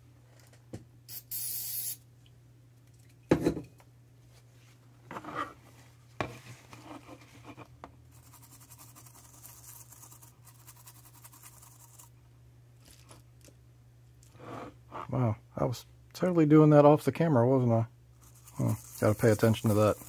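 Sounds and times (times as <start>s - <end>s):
scrubbing on a circuit board: 18.2s - 20.0s.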